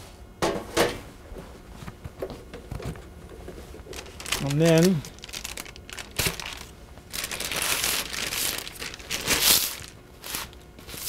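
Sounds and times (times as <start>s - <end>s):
parchment paper rustling: 2.8s - 11.0s.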